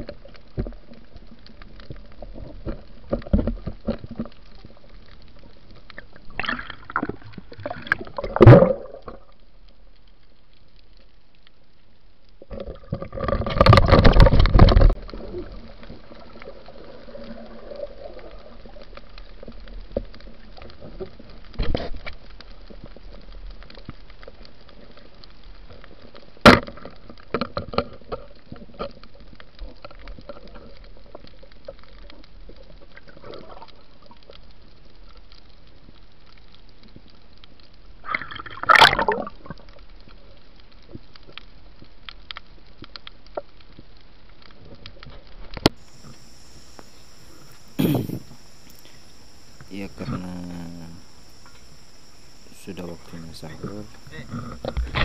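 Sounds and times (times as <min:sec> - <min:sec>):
faint steady hum: 0:00.0 - 0:55.0
water gurgling and bubbling: 0:06.0 - 0:09.4, 0:12.4 - 0:19.7, 0:38.0 - 0:39.7, 0:45.8 - 0:55.0.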